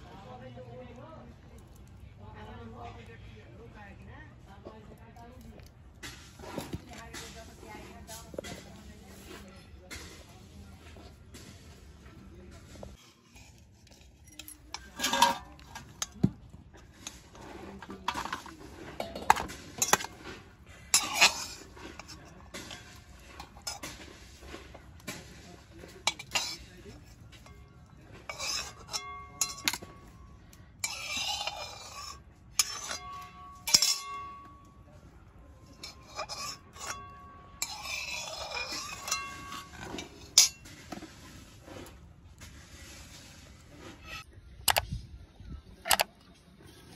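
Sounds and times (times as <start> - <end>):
spatula scraping metal wok: 12.8 - 34.8, 35.6 - 44.8.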